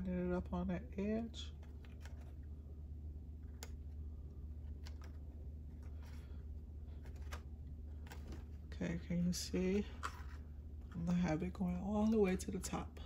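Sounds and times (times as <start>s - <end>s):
steady low hum: 0.0s - 13.0s
soft paper rustle: 1.5s - 2.5s, 4.5s - 8.8s, 9.7s - 11.2s.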